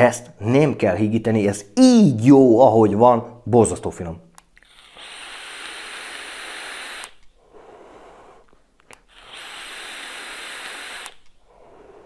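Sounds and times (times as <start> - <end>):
vaporiser hissing: 4.6 - 12.0.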